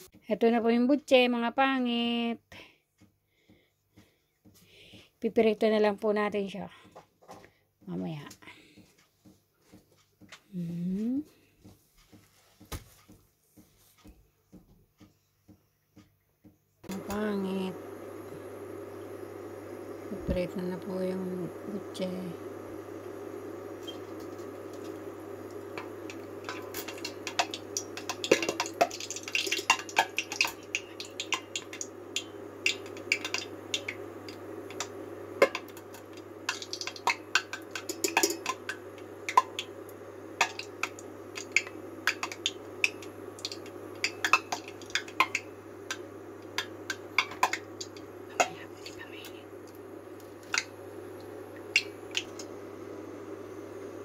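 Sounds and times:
food deep-frying in oil: 21.9 - 52.8
wire strainer clinking on pot: 36.5 - 39.4.

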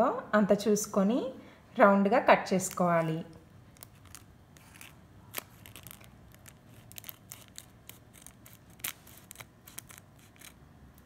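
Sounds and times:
scissors snipping plastic: 3.8 - 11.0.

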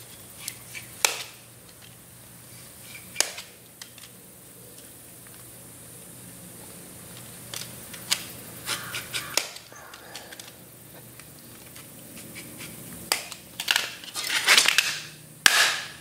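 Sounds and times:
knife scratching plastic: 11.6 - 15.0.

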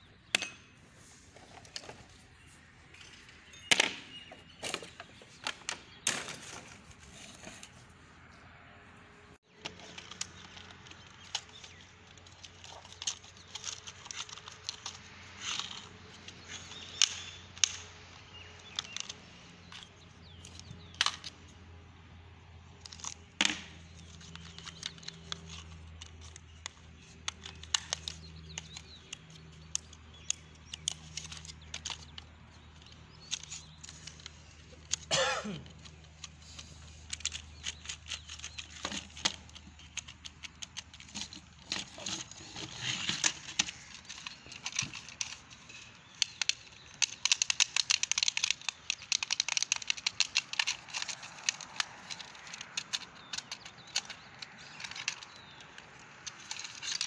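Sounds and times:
plastic scrape: 0.8 - 8.0, 33.1 - 57.0
plastic toy clicking and rattling: 9.5 - 21.5, 22.7 - 57.0.

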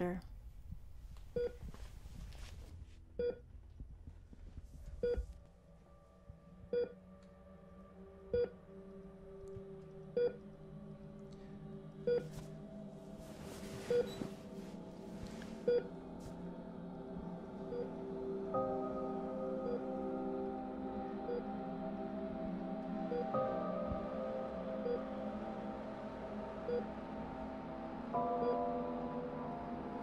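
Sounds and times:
low musical drone: 2.7 - 30.0
patient monitor beeping: 13.9 - 14.4.

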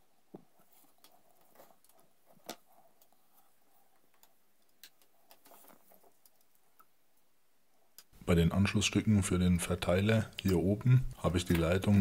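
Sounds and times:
faint clicks and light taps: 7.9 - 8.2.

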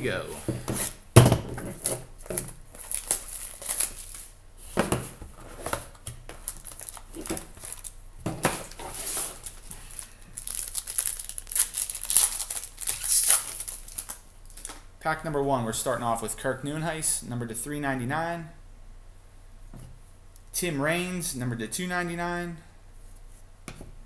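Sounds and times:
plastic shrink wrap crinkling: 1.7 - 4.4, 5.4 - 8.0, 8.6 - 14.9
foil wrapper tearing: 2.7 - 4.3, 6.4 - 8.0, 8.6 - 14.8.

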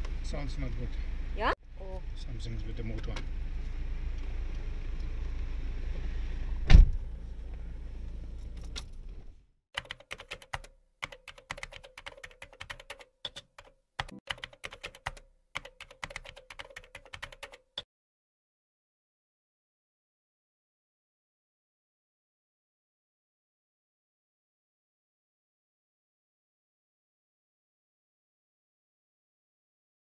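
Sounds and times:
loud thump: 6.6 - 7.0
typewriter-style keyboard clicks: 9.8 - 17.8.

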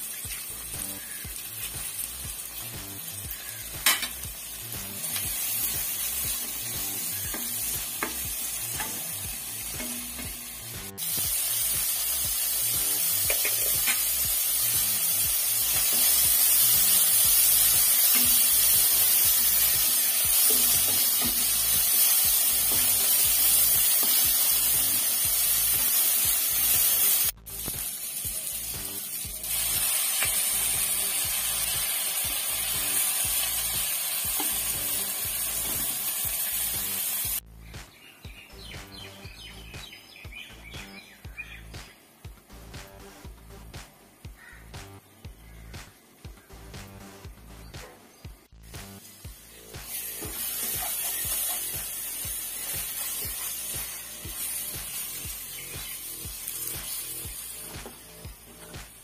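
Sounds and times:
vegetables sizzling in hot oil: 0.0 - 37.4, 48.7 - 59.0.

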